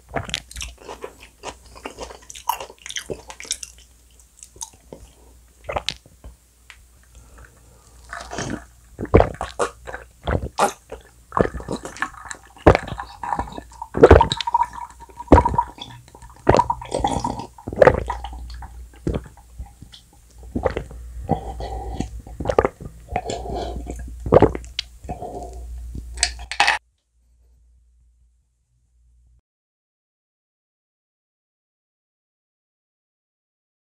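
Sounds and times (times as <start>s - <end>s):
person gulping water: 0.1s - 3.9s, 4.5s - 6.0s, 7.2s - 26.8s.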